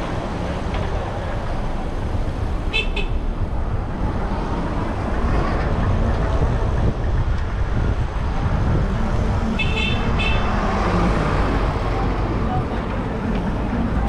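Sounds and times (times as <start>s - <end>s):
city traffic: 0.0s - 14.0s
wind buffeting microphone: 0.0s - 14.0s.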